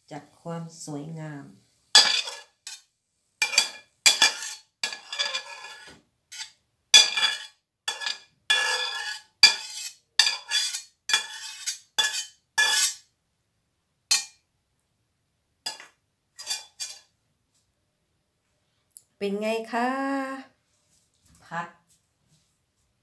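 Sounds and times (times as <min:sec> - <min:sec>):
metal spatula scraping a pan: 0:01.9 - 0:13.1, 0:14.1 - 0:14.4, 0:15.7 - 0:17.1.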